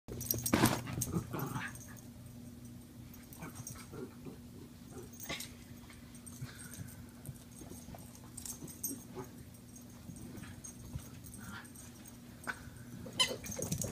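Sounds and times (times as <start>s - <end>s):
dogs scuffling: 0.1s - 1.5s, 13.1s - 13.9s
dog growls: 3.4s - 5.4s.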